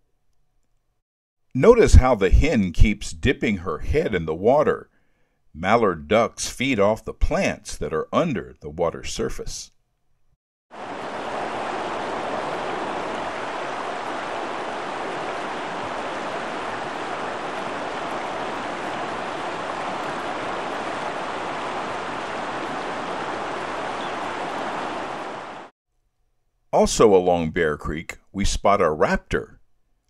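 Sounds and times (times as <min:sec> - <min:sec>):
flowing creek water: 0:10.8 - 0:25.7.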